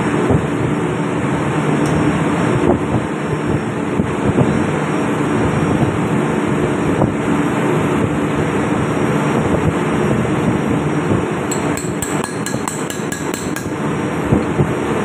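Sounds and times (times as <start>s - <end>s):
ship's machinery drone: 0.0s - 15.0s.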